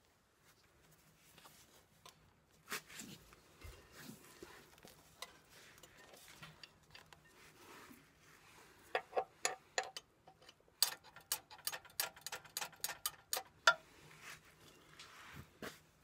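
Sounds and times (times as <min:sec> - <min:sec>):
sharp metallic clicks and taps: 0:09.0 - 0:13.8.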